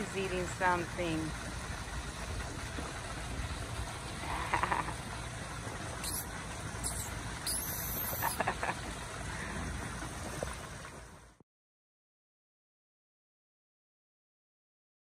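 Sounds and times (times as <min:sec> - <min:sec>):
steady low rumble: 0:00.0 - 0:11.4
monkeys squeaking and chirping: 0:06.0 - 0:08.4.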